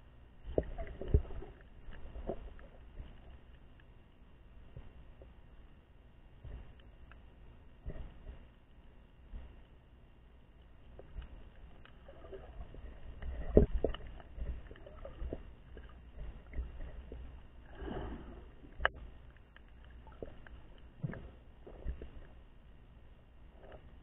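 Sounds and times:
water swishing underwater: 0.0 - 24.0
underwater knocks and thumps: 0.4 - 3.2, 7.8 - 8.5, 12.1 - 19.2, 19.9 - 22.4.

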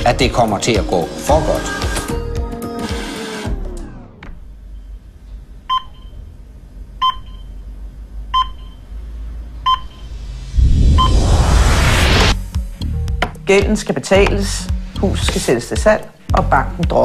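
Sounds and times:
low hum: 4.4 - 13.1
short electronic beeps: 9.6 - 12.1
rising noise swell: 10.0 - 12.6
falling pitch sound effect: 10.1 - 12.4.

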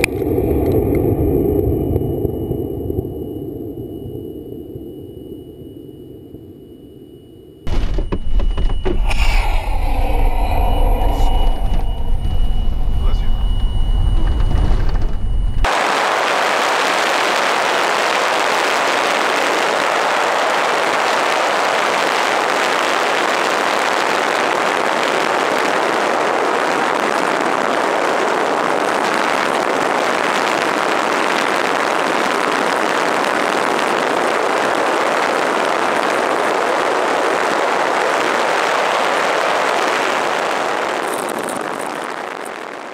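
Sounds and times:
vehicle road and wind noise: 7.7 - 15.8.

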